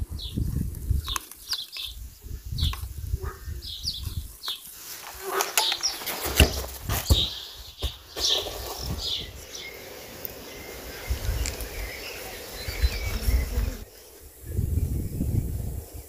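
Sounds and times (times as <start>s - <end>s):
birds chirping: 0.0s - 16.0s
insects: 0.0s - 16.0s
low rumbles on microphone: 12.6s - 16.0s.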